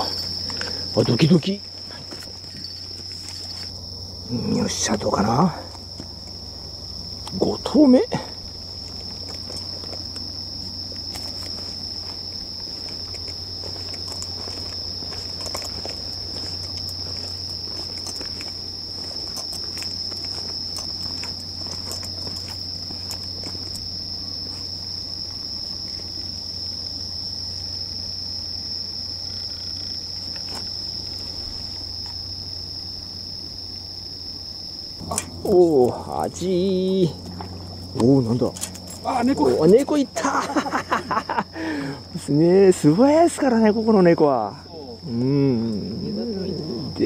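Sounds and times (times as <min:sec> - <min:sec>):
low steady hum: 0:00.0 - 0:42.2
crickets chirring: 0:00.0 - 0:47.0.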